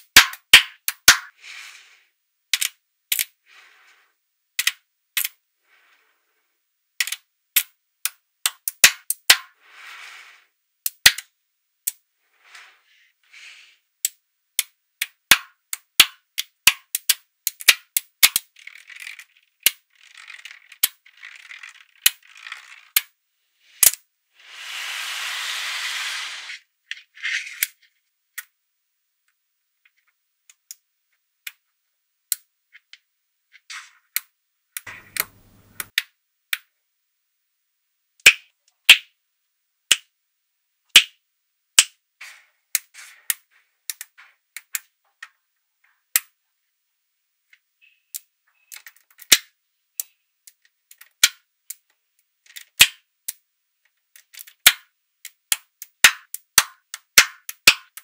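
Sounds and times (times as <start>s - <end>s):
magnetic balls clicking together: 2.5s - 3.3s, 7.0s - 9.4s, 14.0s - 23.1s, 34.8s - 36.0s, 54.1s - 58.0s.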